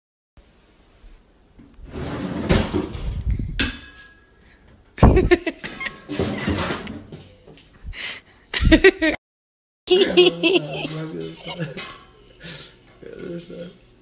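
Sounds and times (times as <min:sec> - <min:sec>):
kitchen drawer opening: 0:01.8 - 0:03.2, 0:05.9 - 0:07.3
metal pots and pans clattering: 0:03.6 - 0:04.4, 0:05.5 - 0:07.3, 0:11.6 - 0:12.2.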